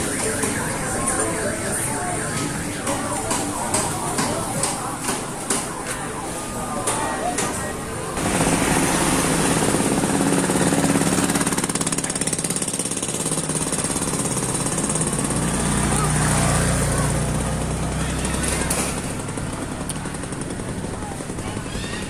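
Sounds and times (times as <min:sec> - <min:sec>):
small engine running: 0:08.2 - 0:22.0.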